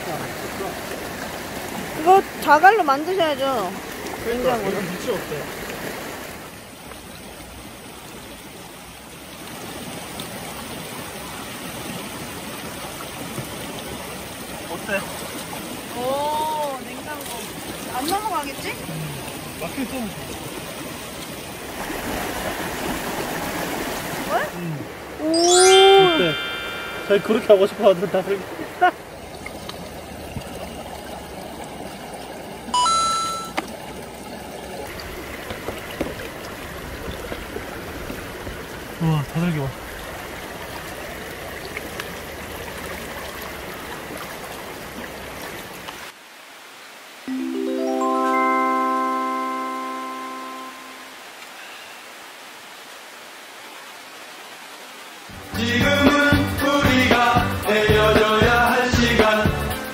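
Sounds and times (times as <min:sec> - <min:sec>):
stream flowing over rocks: 0:00.0 - 0:55.4
two-note electronic beep: 0:25.2 - 0:27.7, 0:32.8 - 0:33.6, 0:47.3 - 0:51.2.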